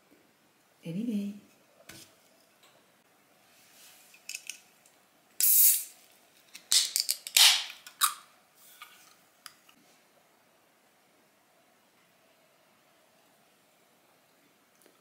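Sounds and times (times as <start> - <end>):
fizzing hiss of gas: 5.4 - 5.9.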